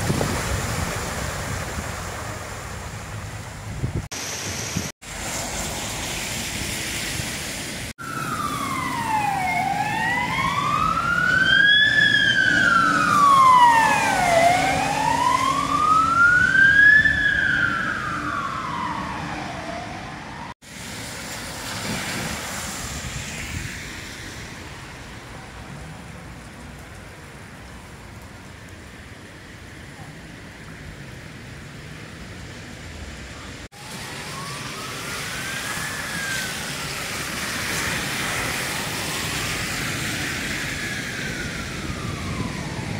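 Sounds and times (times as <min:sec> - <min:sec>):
wind on microphone: 0:00.0 - 0:02.0, 0:03.6 - 0:04.9
rain: 0:00.0 - 0:42.9
running floodwater: 0:00.0 - 0:42.9
fire engine siren wailing: 0:08.0 - 0:20.6, 0:33.7 - 0:42.9.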